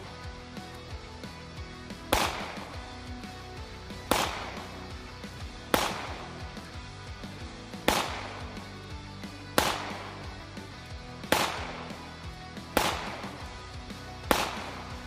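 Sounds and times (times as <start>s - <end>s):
background music: 0.0s - 15.0s
pistol shots: 2.1s - 2.9s, 4.0s - 4.9s, 5.6s - 6.5s, 7.8s - 8.7s, 9.5s - 10.3s, 11.2s - 13.5s, 14.2s - 15.0s.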